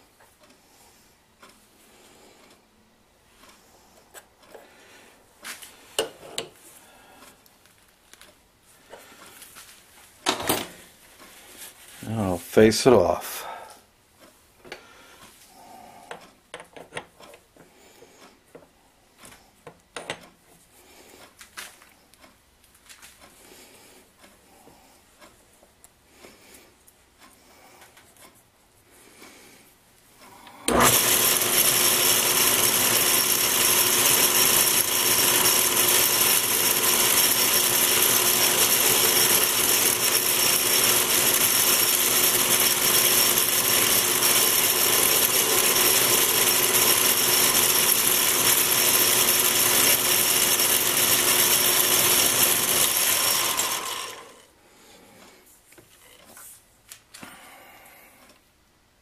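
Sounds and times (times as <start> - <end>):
metal lathe whining: 30.7 - 54.4.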